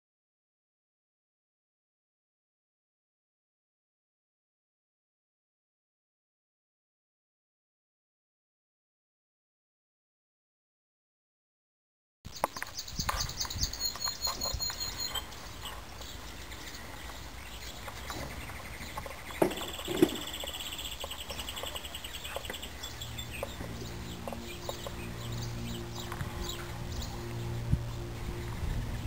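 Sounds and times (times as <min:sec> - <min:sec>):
outdoor ambience: 0:12.3 - 0:29.0
small birds trilling: 0:12.3 - 0:29.0
steady music: 0:21.0 - 0:29.0.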